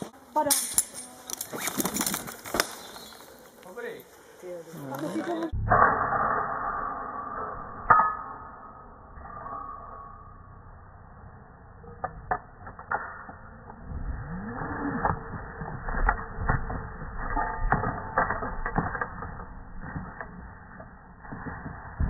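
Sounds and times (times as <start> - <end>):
carabiners clinking: 0.4 - 4.2.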